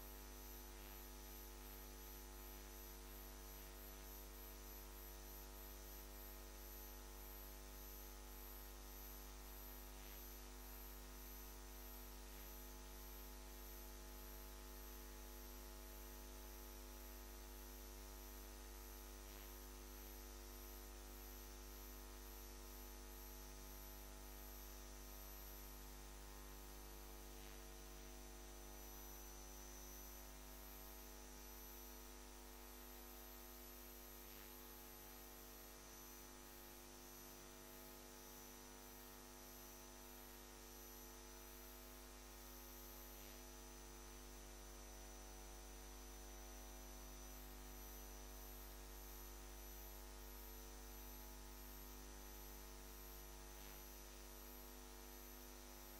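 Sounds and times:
electrical mains hum: 0.0 - 37.3.

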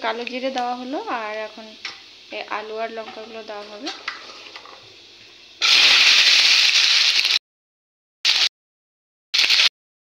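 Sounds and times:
vegetables sizzling in hot oil: 0.0 - 7.4, 8.3 - 8.5, 9.4 - 9.7.

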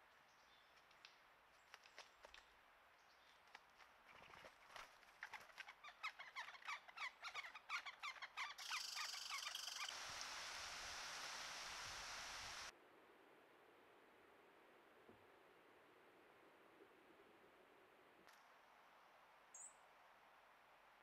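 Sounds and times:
bird calling sharp notes: 6.0 - 10.0
steady hiss: 8.6 - 12.7.

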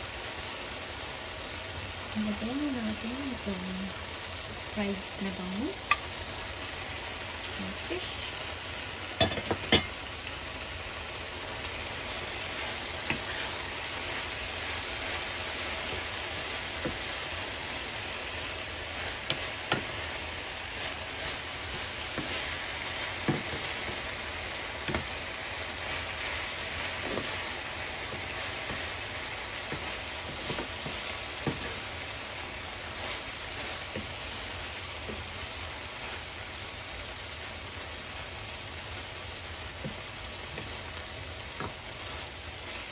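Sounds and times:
food sizzling in a frying pan: 0.0 - 42.9
spoon knocking against pan: 9.2 - 9.9.

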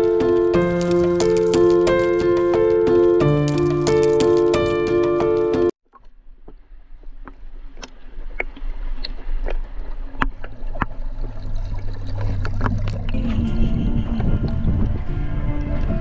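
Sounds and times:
water rushing underwater: 8.8 - 16.0.

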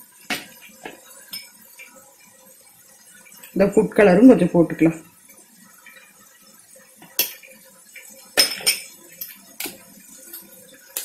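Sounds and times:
metal spoon clinking on bowls: 1.3 - 1.6, 8.0 - 9.4.

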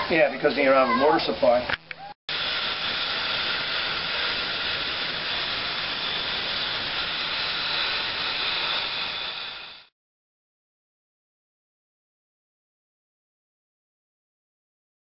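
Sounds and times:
steam locomotive venting steam: 2.3 - 9.9.

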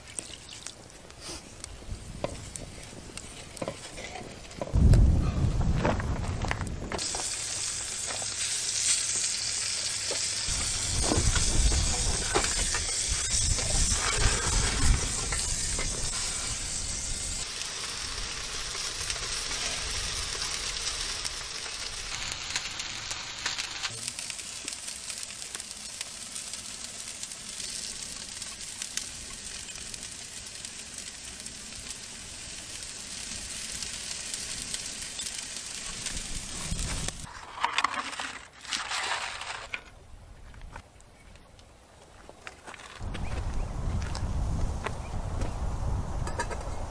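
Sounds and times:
meat sizzling in pan: 7.0 - 37.3.

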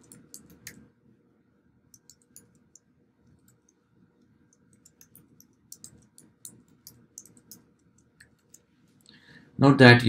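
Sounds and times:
typing on computer keyboard: 0.0 - 0.8, 1.9 - 3.8, 4.5 - 8.6.

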